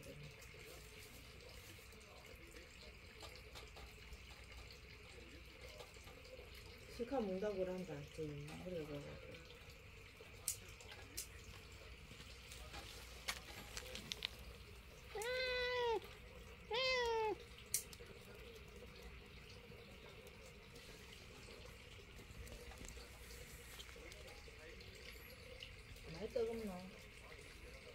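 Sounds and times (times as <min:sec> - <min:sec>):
cat meowing: 0:15.1 - 0:17.4.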